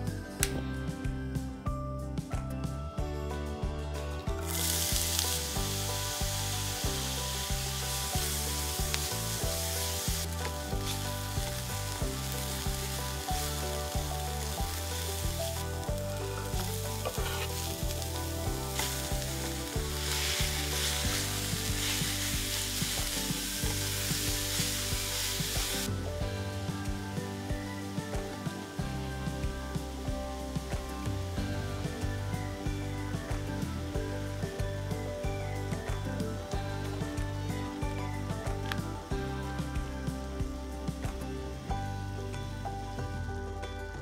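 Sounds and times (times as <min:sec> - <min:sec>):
onions and pork sizzling in oil: 0:03.0 - 0:44.0
spatula stirring in pan: 0:16.3 - 0:25.9.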